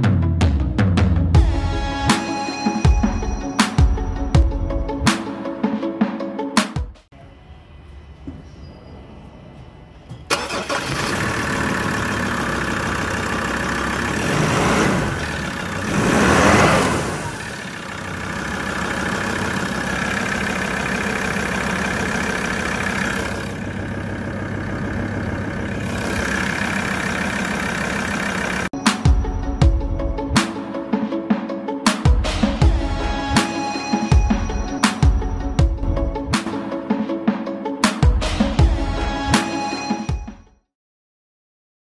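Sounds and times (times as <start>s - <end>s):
diesel engine starting and idling: 10.1s - 30.0s
engine revving: 10.3s - 28.7s.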